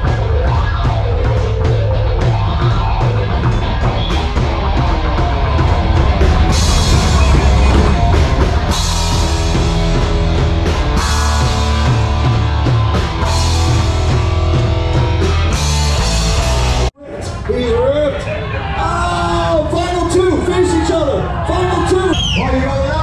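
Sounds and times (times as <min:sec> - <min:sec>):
rock music: 0:00.0 - 0:23.0
cymbal crashes: 0:03.7 - 0:12.4.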